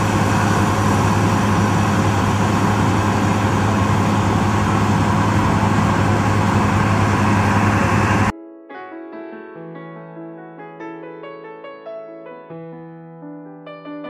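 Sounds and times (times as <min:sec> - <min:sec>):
combine harvester running: 0:00.0 - 0:08.3.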